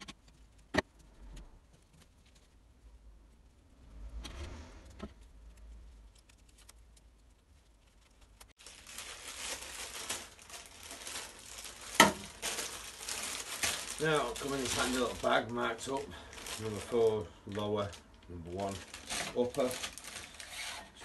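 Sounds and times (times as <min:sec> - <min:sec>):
paper bag crinkling: 0:05.4 - 0:21.0.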